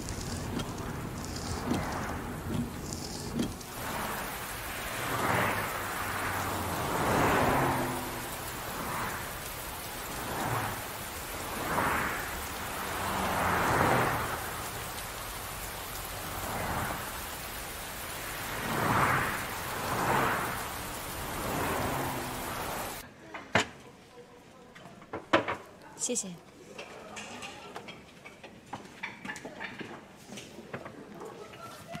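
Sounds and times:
heavy rain pouring: 0:00.0 - 0:23.0.

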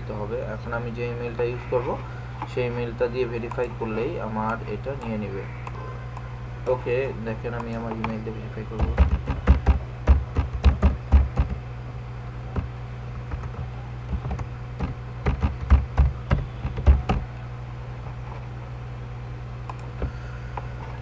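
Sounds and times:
steady low hum: 0:00.0 - 0:21.0
typing on computer keyboard: 0:14.2 - 0:17.2.

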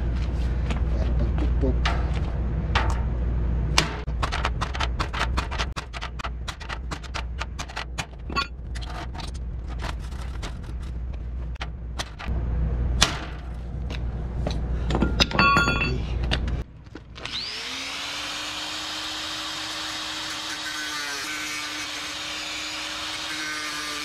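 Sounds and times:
angle grinder grinding steel: 0:17.2 - 0:24.0.

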